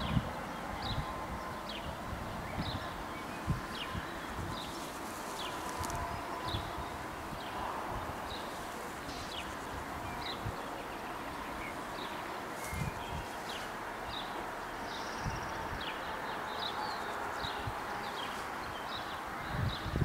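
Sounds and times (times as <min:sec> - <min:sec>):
wind thumps on microphone: 0:00.0 - 0:01.1, 0:12.6 - 0:13.6
outdoor background hiss: 0:00.0 - 0:20.0
small birds chirping: 0:00.0 - 0:20.0.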